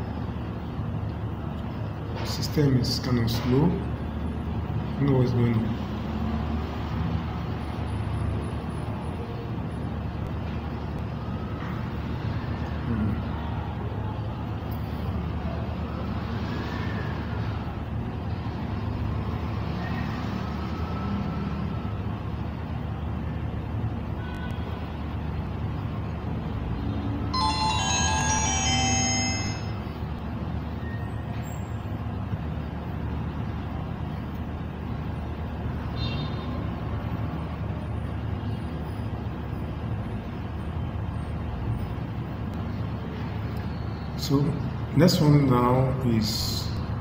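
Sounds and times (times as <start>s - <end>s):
burst of high tones: 27.4s - 30.0s.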